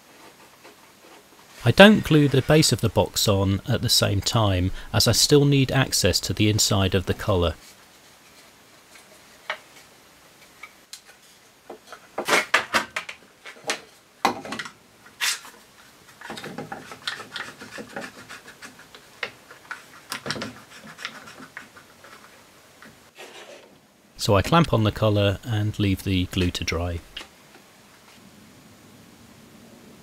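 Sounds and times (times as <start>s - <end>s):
clamps scraping and knocking wood: 10.4s - 23.8s.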